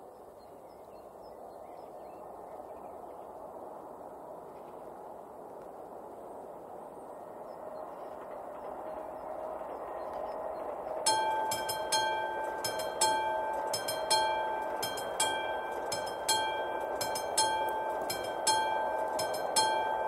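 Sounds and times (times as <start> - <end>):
level-crossing warning bell ringing: 8.6 - 20.0
background hiss: 11.0 - 20.0.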